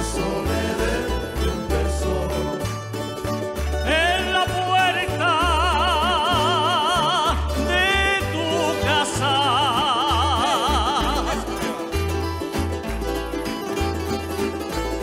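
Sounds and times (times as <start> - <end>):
bass line: 0.0 - 15.0
plucked guitars: 0.0 - 15.0
solo voice singing with vibrato: 3.9 - 11.5.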